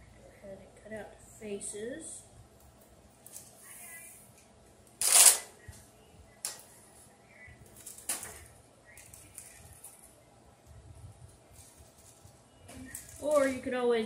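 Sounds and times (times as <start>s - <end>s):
parchment paper rustling: 6.6s - 13.8s.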